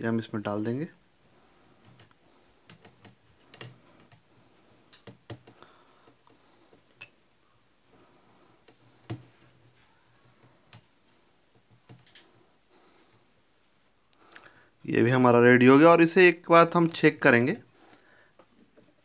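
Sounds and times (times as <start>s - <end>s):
small metal and plastic clicks: 11.9s - 12.3s.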